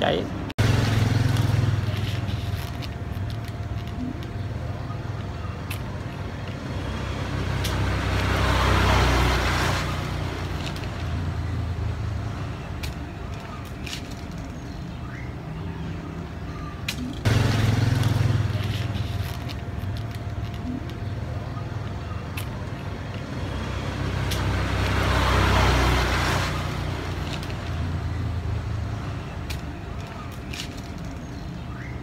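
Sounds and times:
vehicle passing: 0.0s - 13.6s, 17.1s - 31.2s
traffic rumble: 0.0s - 32.0s.

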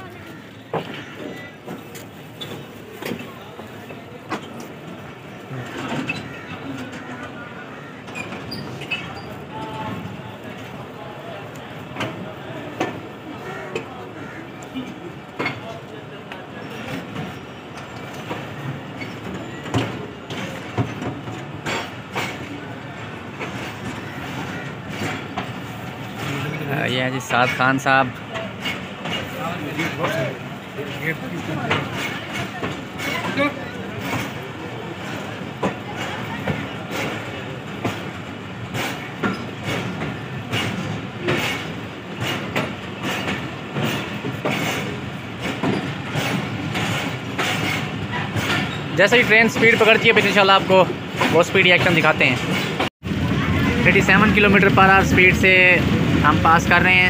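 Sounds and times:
train running gear rumble: 0.0s - 57.0s
train wheels clacking: 11.5s - 57.0s.

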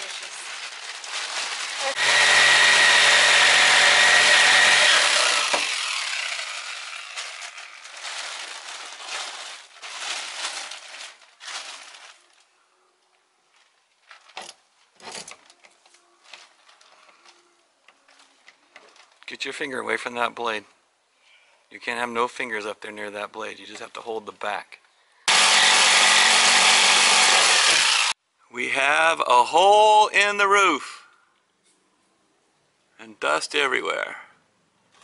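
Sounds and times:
jigsaw cutting wood: 1.8s - 7.8s, 25.3s - 28.2s
scraping and handling noises: 5.5s - 19.3s.

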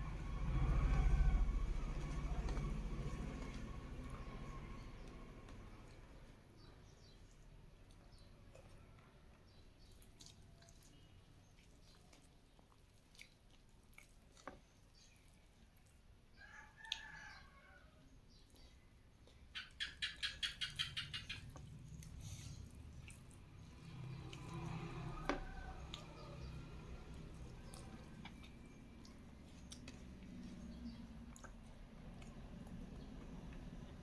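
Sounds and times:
bird chirping: 18.4s - 21.7s
person eating with fingers: 27.2s - 33.8s.

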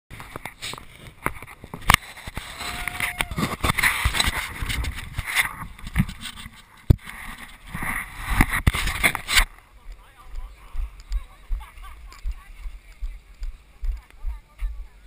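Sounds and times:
hand rubbing camera housing: 3.3s - 9.6s
sharp knocks and scraping: 3.4s - 9.6s.

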